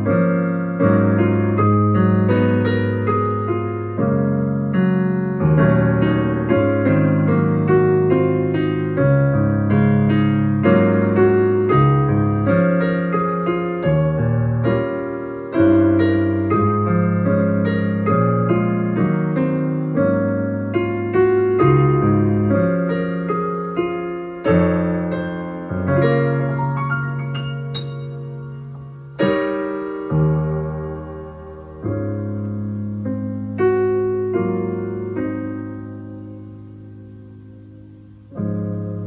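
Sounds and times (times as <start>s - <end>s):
slow piano piece: 0.0s - 39.0s.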